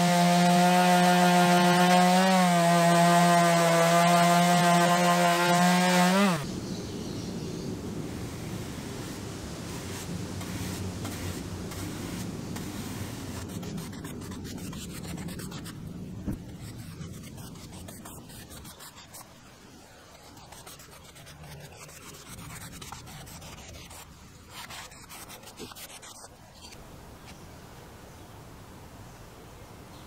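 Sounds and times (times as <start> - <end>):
paintbrush rubbing on wood: 9.8 - 19.3, 20.2 - 26.8.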